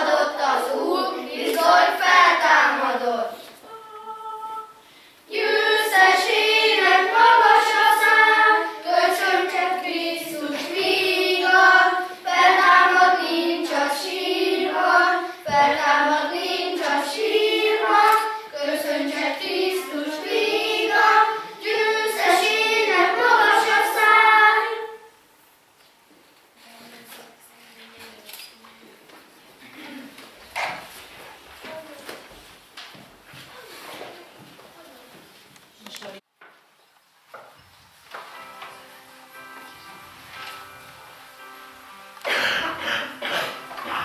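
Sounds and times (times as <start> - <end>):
children singing together: 0.0 - 25.2, 39.6 - 44.0.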